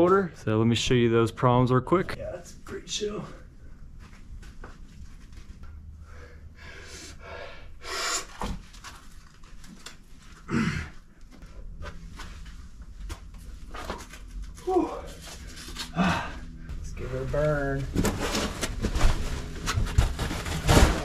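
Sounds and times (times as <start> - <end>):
man breathing heavily: 6.0 - 8.4, 15.3 - 16.8
man sighing: 15.9 - 16.6.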